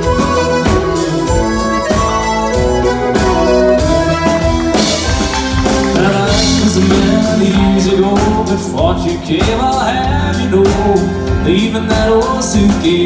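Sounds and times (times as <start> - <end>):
fiddle: 0.0 - 7.0
accordion: 0.0 - 13.0
drum beat: 0.0 - 13.0
electric guitar: 0.0 - 13.0.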